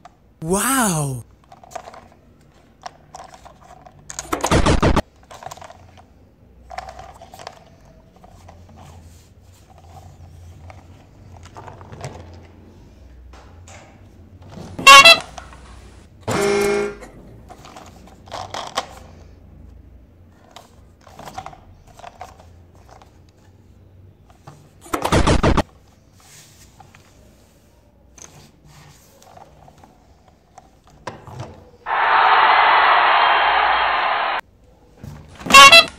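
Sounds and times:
loud short burst: 31.9 - 34.4.

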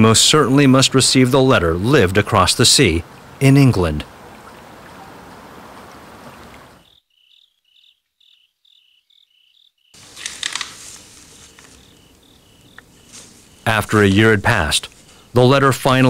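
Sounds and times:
steady background hiss: 0.0 - 6.9, 10.0 - 16.0
insect chirping: 6.6 - 15.4.

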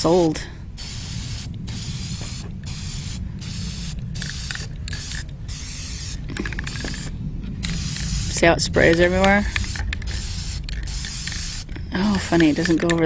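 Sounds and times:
low rumble: 0.0 - 13.0
spray can hissing: 0.8 - 12.8.

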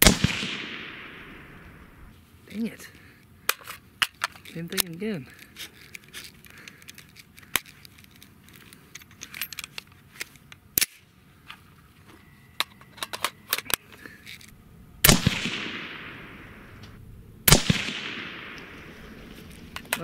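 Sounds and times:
suppressed rifle shot: 0.0 - 2.1, 15.0 - 19.4
metallic clicks of rifle action: 3.4 - 11.6, 12.6 - 14.6, 18.1 - 20.0.

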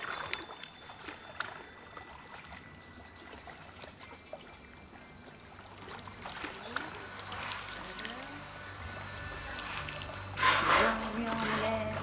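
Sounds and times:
gentle water splashing and trickling: 0.0 - 12.0
thin steady high tone: 0.0 - 12.0.

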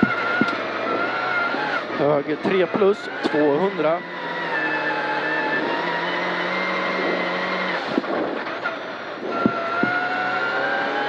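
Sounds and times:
car knocks: 0.0 - 0.6, 9.4 - 10.0.

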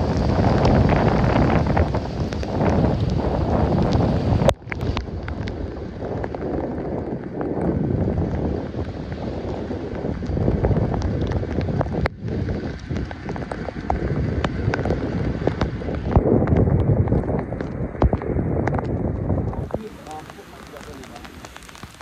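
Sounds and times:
faint rain ticks: 0.0 - 22.0
wind buffeting microphone: 0.0 - 22.0.

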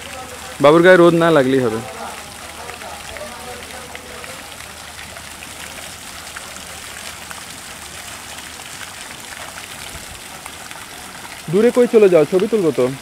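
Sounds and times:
fountain water splashing: 0.0 - 13.0.

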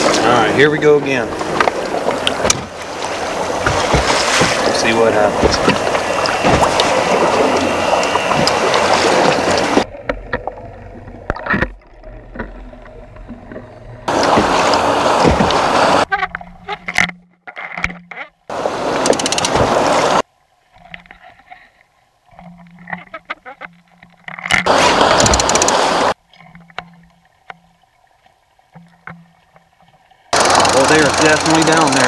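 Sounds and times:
water and wind rushing: 0.0 - 17.1, 18.5 - 21.4, 23.9 - 32.0
sharp clicks: 19.0 - 19.6, 25.0 - 26.1, 30.4 - 32.0.

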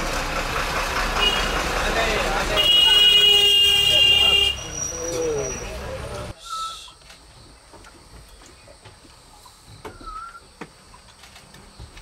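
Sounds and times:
whistled bird note: 6.4 - 7.0, 10.0 - 10.4.

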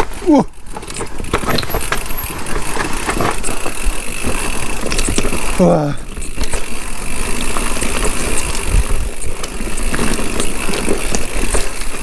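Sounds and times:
bike rattling clicks and knocks: 0.0 - 12.0
tyres on dirt and rock: 0.0 - 12.0
wind rumble on microphone: 8.5 - 9.2.

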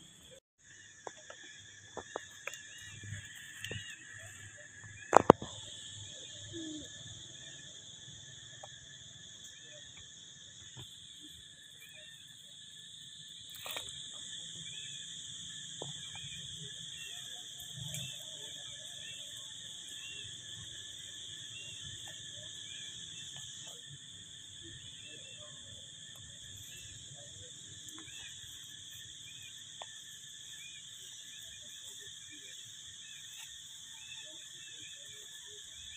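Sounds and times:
high-pitched insect drone: 0.0 - 35.9.

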